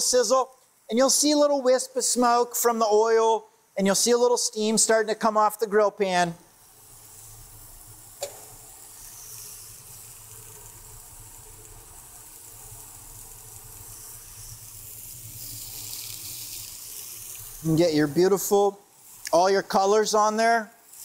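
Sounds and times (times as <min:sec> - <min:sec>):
cauliflower sizzling on grill pan: 0:06.5 - 0:21.0.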